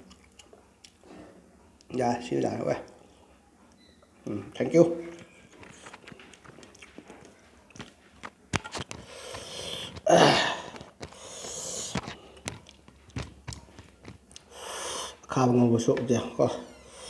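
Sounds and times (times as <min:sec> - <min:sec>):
man chewing food: 0:00.0 - 0:01.9, 0:05.1 - 0:15.3
wet mouth clicks and smacks: 0:05.8 - 0:07.9.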